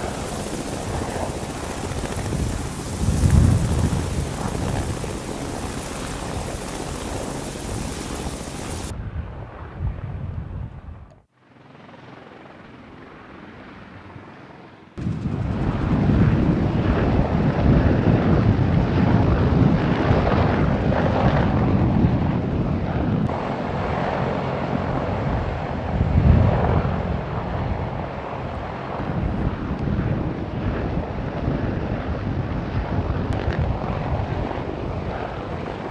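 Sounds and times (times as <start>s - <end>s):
military helicopters running: 0.0s - 8.9s, 11.4s - 35.9s.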